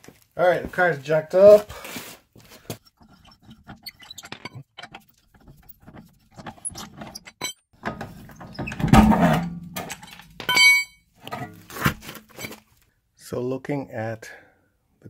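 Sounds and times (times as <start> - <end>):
high ringing tone: 10.4 - 11.0.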